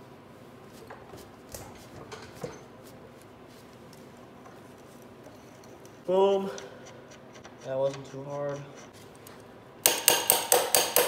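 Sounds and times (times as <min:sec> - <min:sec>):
wrench clicking and knocking: 0:09.8 - 0:11.0.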